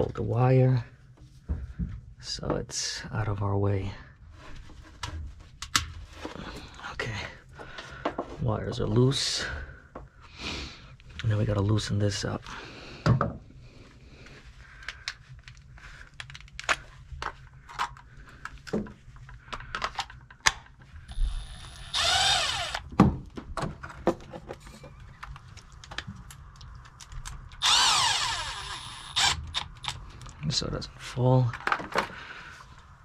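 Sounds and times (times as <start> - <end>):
cordless drill running: 21.1 - 22.9, 27.6 - 30.0.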